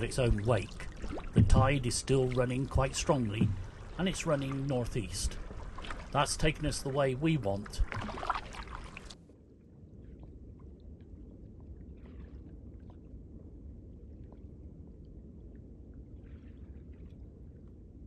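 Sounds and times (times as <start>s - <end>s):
soft paddle strokes: 0.0s - 9.2s, 10.0s - 18.0s
water drips and splashes: 0.0s - 9.2s
low steady rumble: 0.0s - 18.0s.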